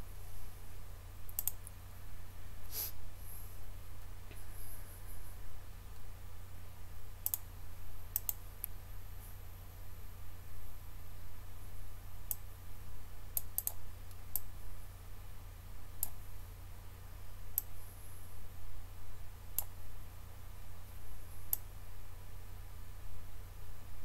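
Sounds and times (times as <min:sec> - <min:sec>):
steady low hum: 0:00.0 - 0:24.0
computer mouse clicking: 0:01.3 - 0:01.7, 0:07.2 - 0:07.4, 0:08.1 - 0:08.8, 0:13.4 - 0:14.5, 0:16.0 - 0:16.2, 0:17.5 - 0:17.7.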